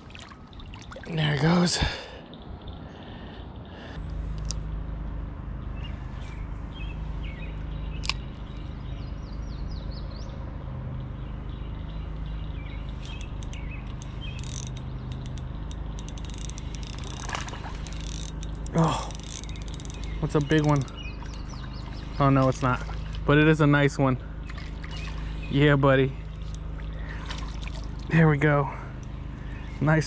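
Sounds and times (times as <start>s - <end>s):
small birds chirping: 0.0s - 30.0s
sharp click: 8.0s - 8.7s
fishing reel whirring: 12.9s - 21.8s.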